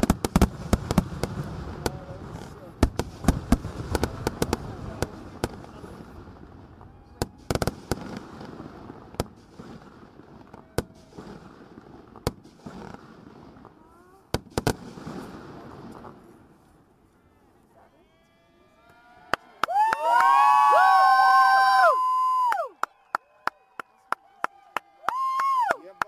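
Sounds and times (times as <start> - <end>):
firework bangs: 0.0 - 16.9
firecracker pops: 12.1 - 16.2.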